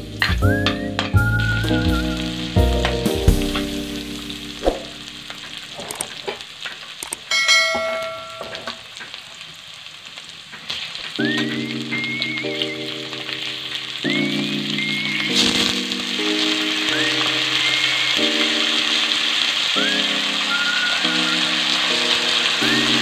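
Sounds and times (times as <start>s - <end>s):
background music: 0.0s - 5.4s, 11.2s - 23.0s
onions sizzling in oil: 0.0s - 23.0s
short chime: 7.3s - 8.8s.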